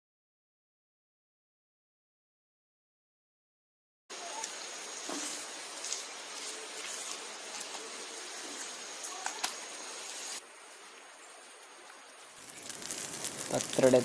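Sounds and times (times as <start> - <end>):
faint steady hiss: 4.1 - 14.0.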